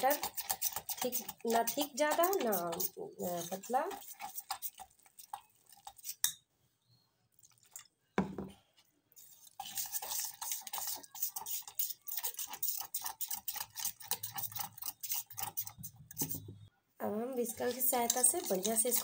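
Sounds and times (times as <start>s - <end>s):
fork beating batter in bowl: 0.0s - 6.4s, 9.2s - 16.7s, 17.3s - 19.0s.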